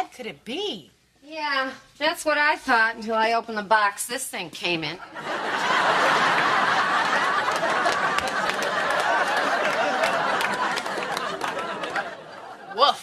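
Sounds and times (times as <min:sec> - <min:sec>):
sitcom audience laughter: 0:05.0 - 0:13.0.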